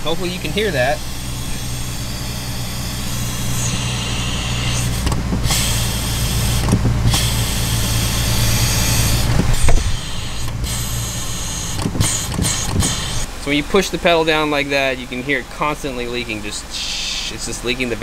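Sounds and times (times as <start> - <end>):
air hissing from brake booster: 0.0 - 13.3, 16.7 - 17.4
car engine idling: 0.0 - 18.0
short thump: 9.2 - 10.8, 11.8 - 13.2.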